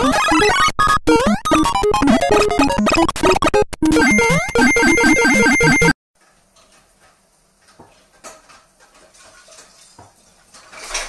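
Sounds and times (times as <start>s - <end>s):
synth melody: 0.0s - 6.0s.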